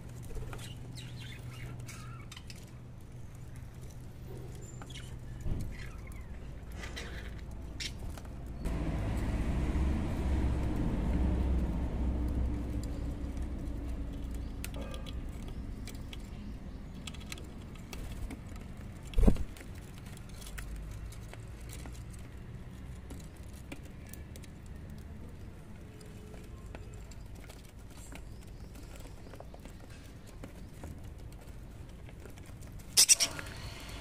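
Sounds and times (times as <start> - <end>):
vehicle passing rumble: 8.2 - 17.2.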